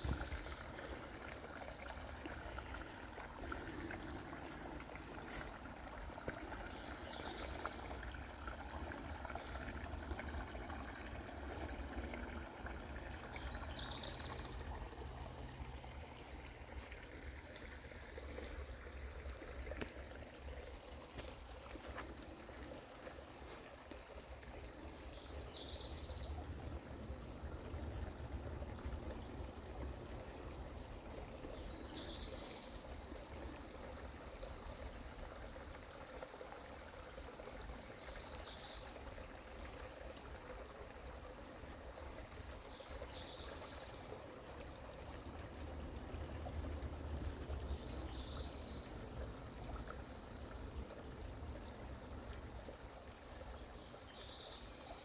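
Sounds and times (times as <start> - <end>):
water trickling over rocks: 0.0 - 55.0.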